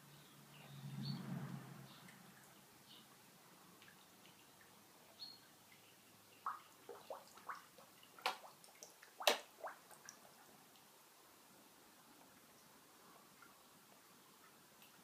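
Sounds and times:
water drips plopping: 0:01.9 - 0:10.9, 0:13.4 - 0:15.0.

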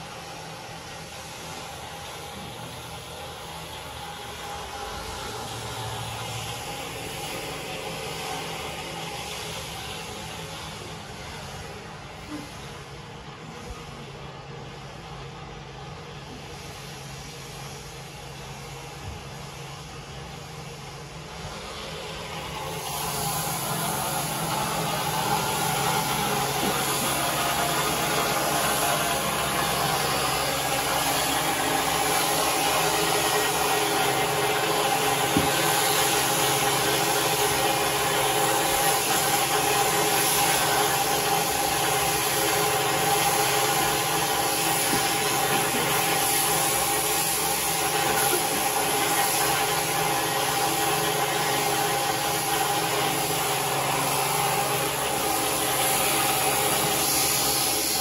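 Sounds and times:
electric shears humming: 0:22.6 - 0:46.6.

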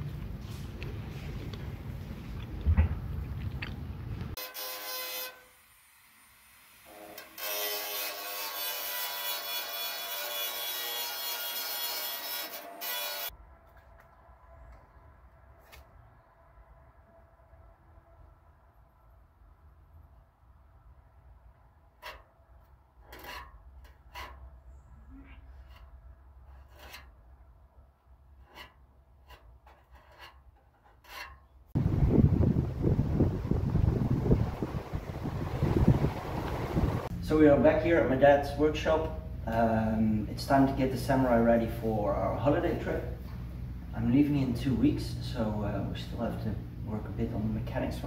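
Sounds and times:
angle grinder whining: 0:06.8 - 0:13.3
abrasive rasping strokes: 0:23.0 - 0:27.3, 0:28.3 - 0:31.6
wind buffeting microphone: 0:31.8 - 0:37.2.

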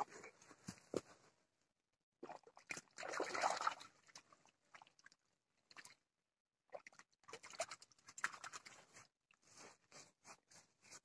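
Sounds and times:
water sloshing: 0:02.2 - 0:06.0
water splashing: 0:02.2 - 0:06.0, 0:06.7 - 0:08.9.

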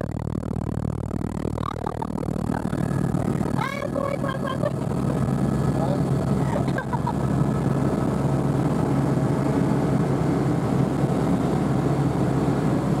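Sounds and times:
helicopter engine and rotor drone: 0:00.0 - 0:13.0.

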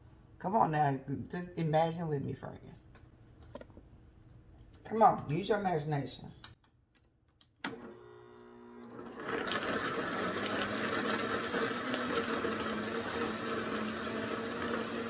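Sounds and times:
blender motor running: 0:07.7 - 0:15.0.

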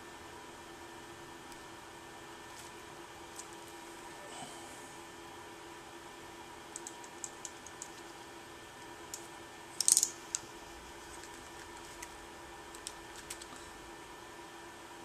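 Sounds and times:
wires and connectors clicking: 0:06.7 - 0:08.2, 0:08.8 - 0:10.5, 0:11.1 - 0:13.6.

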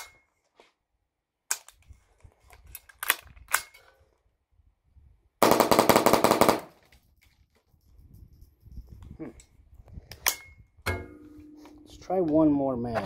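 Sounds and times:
rifle gunshots: 0:05.4 - 0:06.8.

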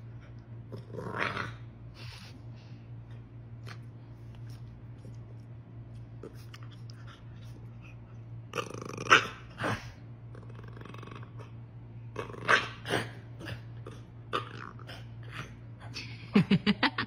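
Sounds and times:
puppy growling: 0:00.0 - 0:02.1, 0:06.2 - 0:15.7
steady low hum: 0:00.0 - 0:17.0.

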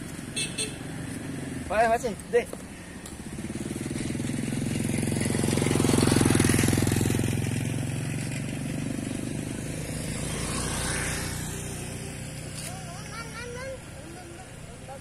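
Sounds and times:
vehicle engine droning past: 0:03.1 - 0:13.8.

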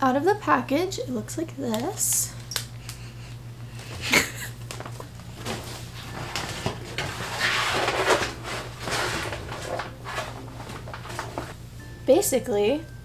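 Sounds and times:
plastic liner crinkling: 0:04.7 - 0:11.6.

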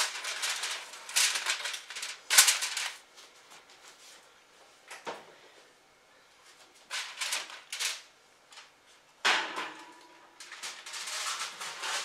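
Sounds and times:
foil rustling and scraping: 0:00.0 - 0:03.1, 0:06.8 - 0:08.1, 0:10.4 - 0:12.0.

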